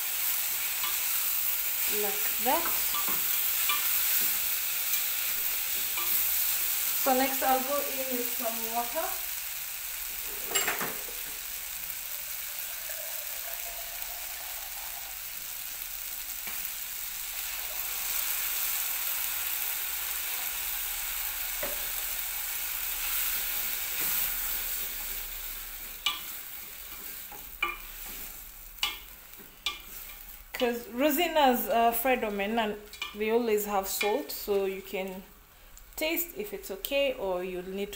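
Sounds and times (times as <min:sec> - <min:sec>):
food sizzling in a pan: 0:00.0 - 0:37.9
water pouring into pan: 0:12.7 - 0:15.2.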